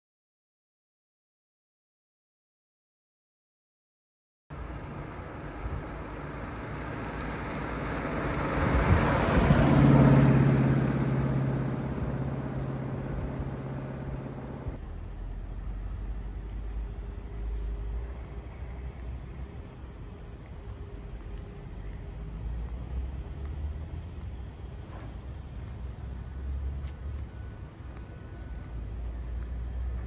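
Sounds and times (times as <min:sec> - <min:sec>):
low rumble: 0:04.5 - 0:30.0
tyre and road noise: 0:04.5 - 0:30.0
car engine driving past: 0:04.6 - 0:18.7.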